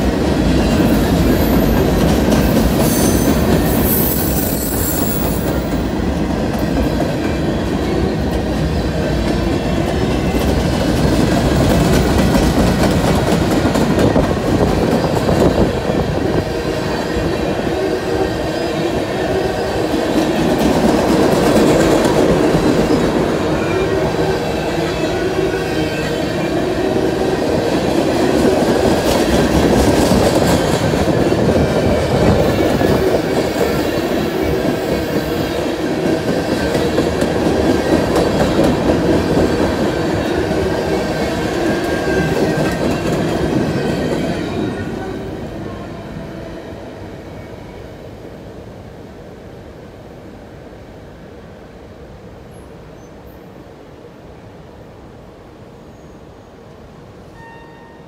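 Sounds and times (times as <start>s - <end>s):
freight train cars rolling past: 0.0s - 54.0s
high wheel squeal: 2.7s - 5.7s.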